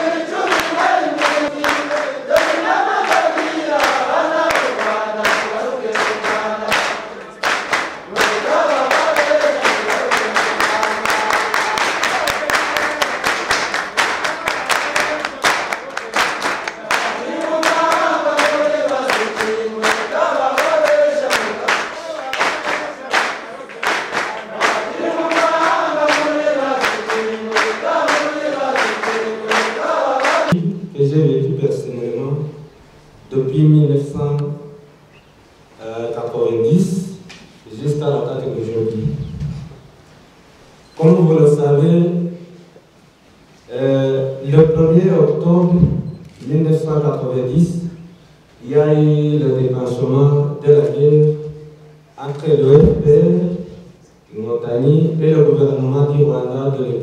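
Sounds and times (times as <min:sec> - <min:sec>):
group singing in chorus: 0:00.0 - 0:30.6
rhythmic hand clapping: 0:00.0 - 0:30.6.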